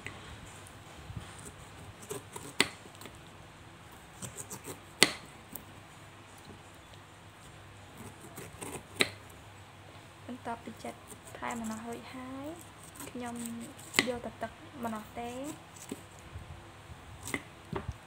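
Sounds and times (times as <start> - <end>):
knife cutting and scraping fruit: 0.1 - 3.3, 3.9 - 5.7, 7.4 - 9.4, 10.4 - 16.3, 17.1 - 18.0.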